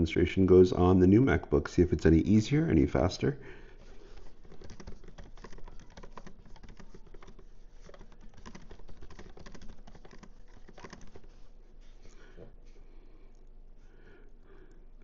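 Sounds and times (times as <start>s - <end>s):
laptop keyboard typing: 3.8s - 11.5s.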